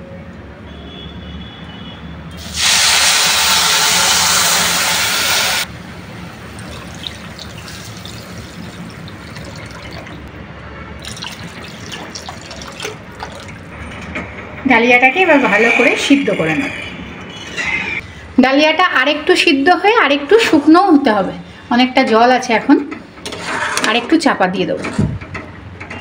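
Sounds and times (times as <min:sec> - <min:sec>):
water hissing in hot pan: 0:02.4 - 0:05.7, 0:06.4 - 0:10.0
bubbling: 0:06.1 - 0:10.3, 0:11.0 - 0:13.8
water pouring splashing and crackling: 0:06.2 - 0:10.3, 0:11.0 - 0:13.9.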